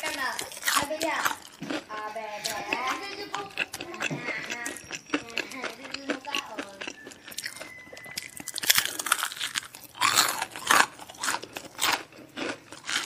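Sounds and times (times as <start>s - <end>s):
crunching fried chicken: 0.0s - 13.0s.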